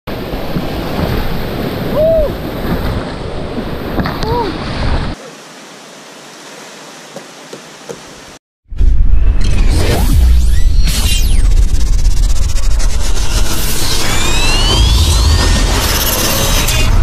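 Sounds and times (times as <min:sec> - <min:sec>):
rushing river water: 0:00.1 - 0:08.4
short rising and falling tones: 0:08.7 - 0:17.0.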